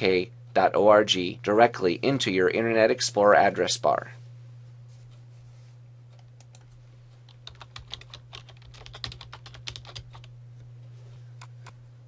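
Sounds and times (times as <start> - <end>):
steady low hum: 0.0 - 12.0
keyboard typing: 6.2 - 10.3.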